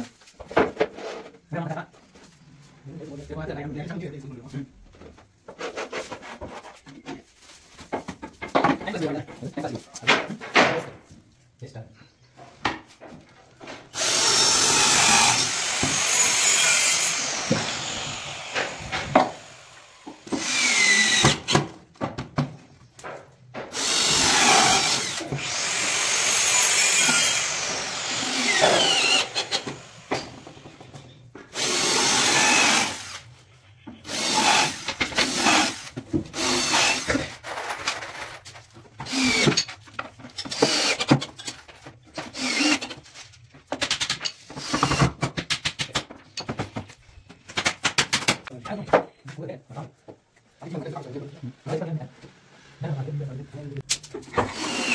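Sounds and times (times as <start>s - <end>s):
knocks and handling noise: 4.8s - 11.6s, 12.2s - 14.0s, 21.5s - 23.8s, 43.0s - 52.5s
electric power drill running: 14.0s - 21.5s, 23.8s - 30.5s, 31.6s - 33.2s, 34.1s - 37.1s, 42.4s - 42.9s, 54.5s - 54.9s.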